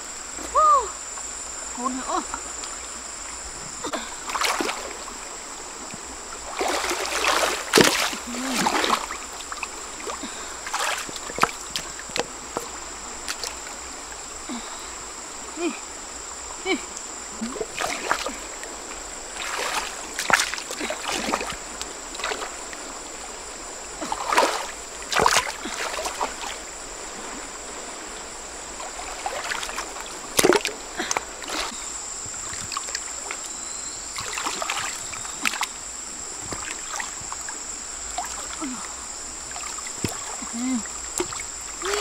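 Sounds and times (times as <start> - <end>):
stream rushing: 0.0 - 42.0
hands splashing in water: 6.5 - 9.2, 10.1 - 12.3, 24.0 - 26.5.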